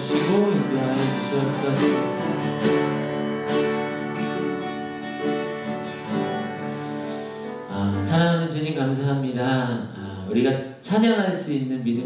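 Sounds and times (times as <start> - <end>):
acoustic guitar strumming: 0.0 - 9.0.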